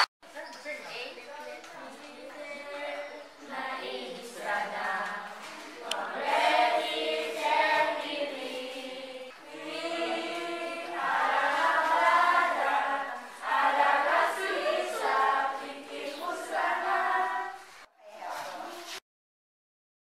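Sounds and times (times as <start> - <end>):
children singing: 2.3 - 17.9.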